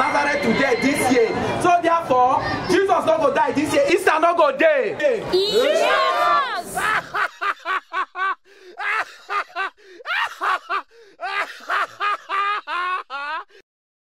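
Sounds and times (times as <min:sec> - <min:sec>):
men wailing in grief: 0:05.8 - 0:13.6.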